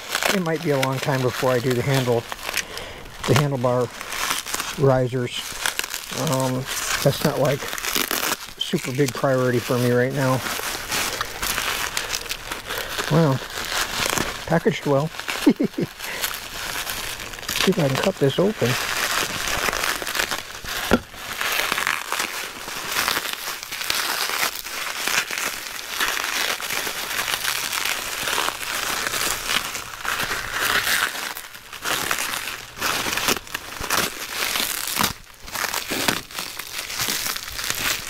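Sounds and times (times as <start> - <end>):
plastic packaging crinkling: 0.0 - 38.0.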